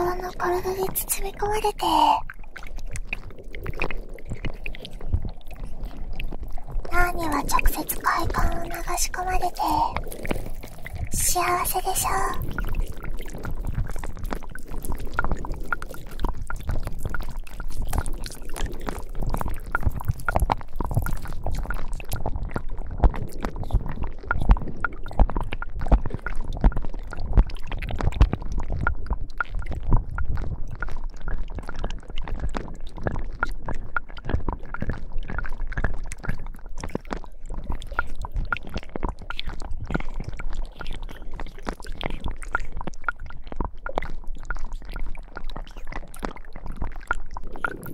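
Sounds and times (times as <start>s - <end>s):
slime squelching: 0.0s - 22.4s.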